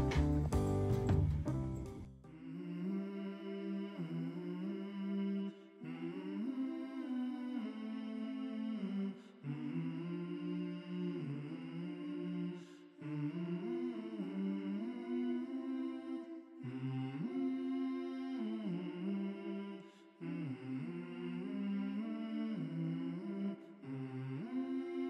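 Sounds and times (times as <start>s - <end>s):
hummed voices in harmony: 2.3s - 25.0s.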